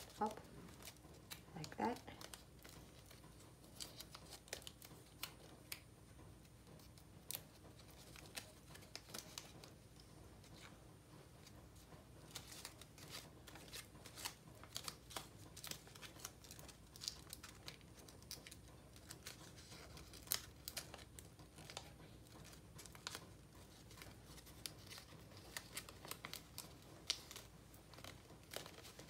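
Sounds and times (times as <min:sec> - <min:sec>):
paper crinkling: 0:00.0 - 0:29.0
paper snap: 0:23.9 - 0:29.0.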